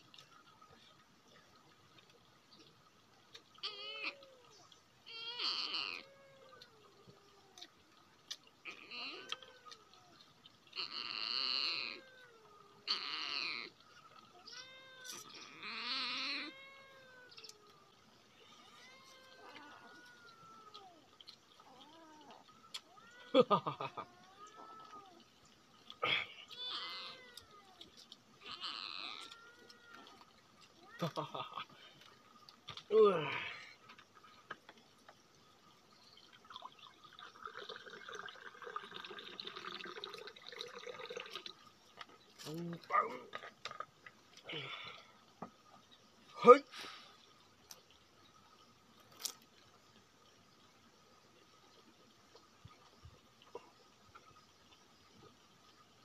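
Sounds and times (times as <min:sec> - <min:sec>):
faint gliding animal calls: 0:00.1 - 0:32.5
liquid pouring and splashing: 0:03.2 - 0:46.2
loud drawn-out animal cries: 0:03.6 - 0:07.6, 0:08.6 - 0:25.2, 0:26.0 - 0:31.2.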